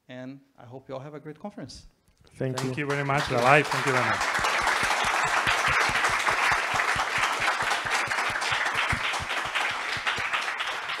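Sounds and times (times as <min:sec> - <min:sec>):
audience applauding: 0:02.5 - 0:11.0.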